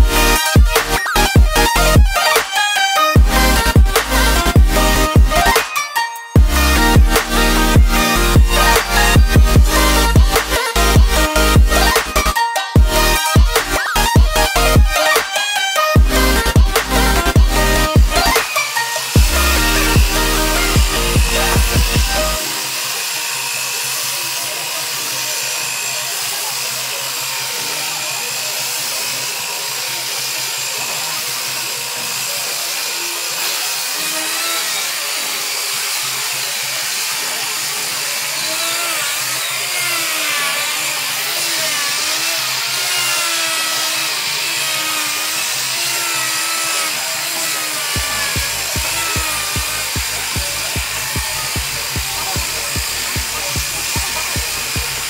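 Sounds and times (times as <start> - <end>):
electronic music beat: 0.0 - 22.7, 48.0 - 55.0
belt sander sanding wood: 0.0 - 55.0.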